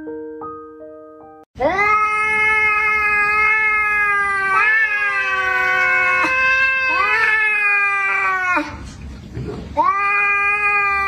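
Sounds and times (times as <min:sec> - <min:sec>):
cat yowling: 0:01.6 - 0:08.8, 0:09.8 - 0:11.0.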